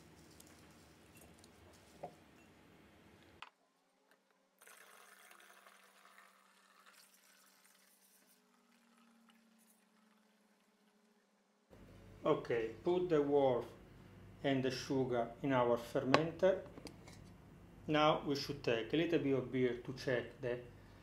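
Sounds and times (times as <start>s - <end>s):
sugar pouring through funnel: 0.0s - 2.0s, 4.6s - 11.2s
liquid trickling into bottle: 4.6s - 10.8s.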